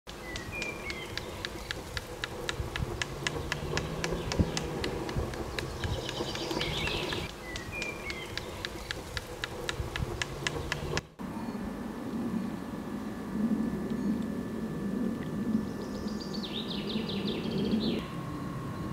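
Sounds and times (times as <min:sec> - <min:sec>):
birds chirping: 0:00.1 - 0:18.9
low steady hum: 0:00.1 - 0:18.9
rapid ticking clicks: 0:00.2 - 0:11.2.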